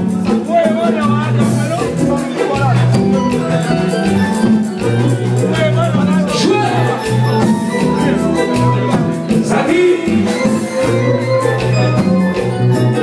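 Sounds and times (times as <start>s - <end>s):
bass: 0.0s - 13.0s
drums: 0.0s - 13.0s
man singing: 5.2s - 10.9s.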